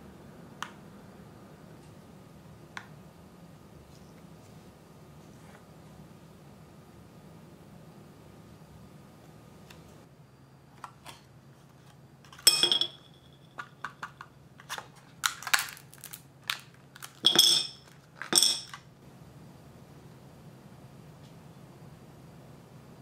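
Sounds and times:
candies clinking on ceramic plate: 12.4 - 14.0, 15.2 - 18.9.

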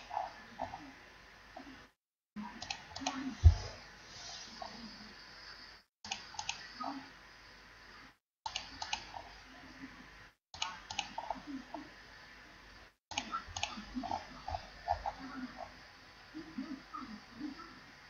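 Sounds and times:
computer mouse clicks: 2.5 - 3.4, 6.1 - 7.0, 8.5 - 9.3, 10.6 - 11.8, 13.1 - 15.3.

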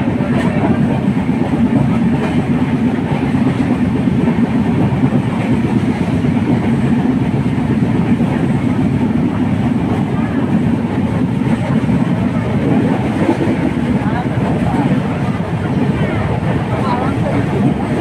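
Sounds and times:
train carriage rumbling on track: 0.0 - 18.0.

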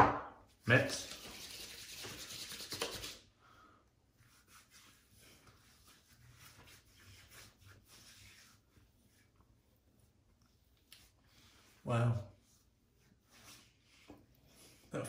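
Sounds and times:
palms rubbing together: 0.8 - 3.2, 4.2 - 14.9
light touches on skin: 10.3 - 11.8.

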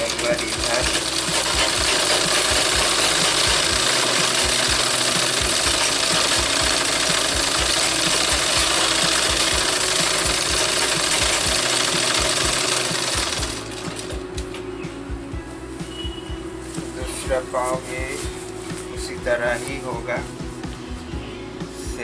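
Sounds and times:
sewing machine knocking: 0.0 - 14.2
sewing machine running: 0.0 - 14.2.

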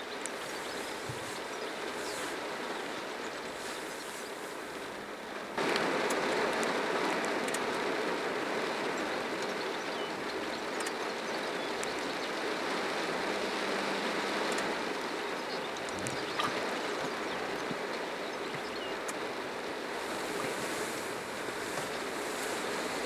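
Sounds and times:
faint high ticks: 8.9 - 12.1, 14.4 - 14.8
steady rushing noise: 18.9 - 23.0.

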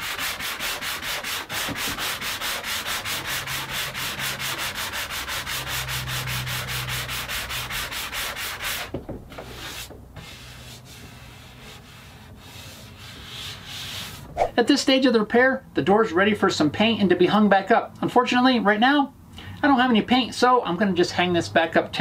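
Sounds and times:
hand sanding wood: 0.0 - 14.5.

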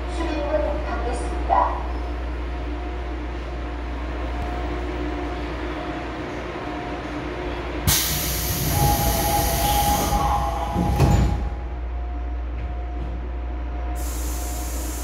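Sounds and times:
subway car low hum: 0.0 - 15.0
loud hiss of air: 7.9 - 10.3, 14.0 - 15.0.

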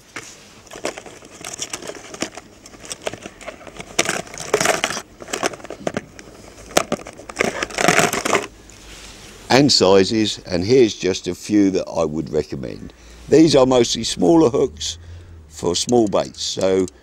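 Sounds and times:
small packets crinkling: 0.2 - 8.8.

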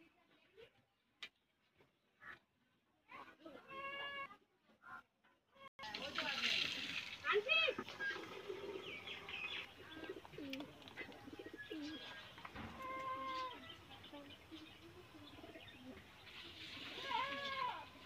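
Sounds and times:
pigeons cooing: 7.8 - 13.9, 14.8 - 16.0.

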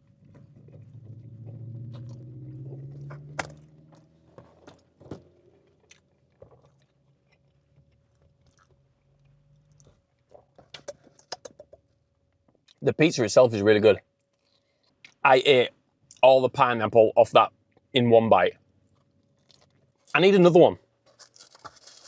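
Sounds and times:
person chewing food: 0.0 - 11.4, 14.2 - 15.2, 18.8 - 20.1.

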